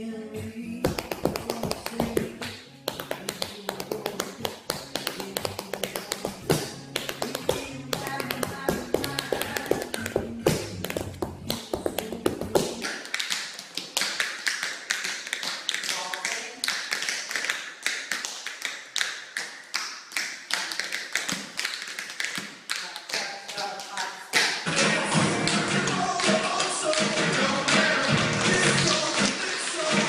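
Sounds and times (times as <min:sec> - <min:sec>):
tap shoes on hard floor: 0:00.9 - 0:13.0.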